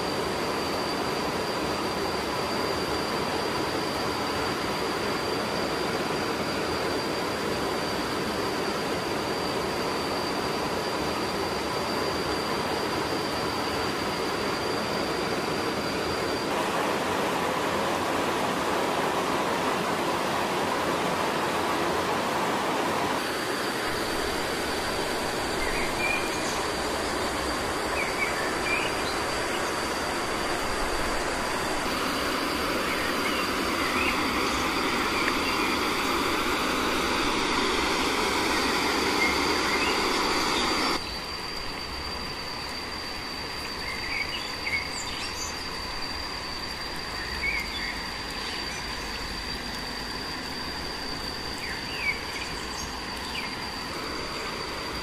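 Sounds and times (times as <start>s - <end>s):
insect drone: 0.0s - 55.0s
outdoor background: 0.0s - 55.0s
stream water rushing: 16.5s - 41.0s.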